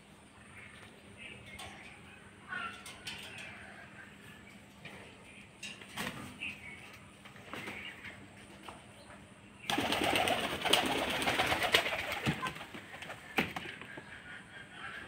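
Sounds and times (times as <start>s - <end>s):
pigeon wings rustling with clicks: 9.7s - 13.7s.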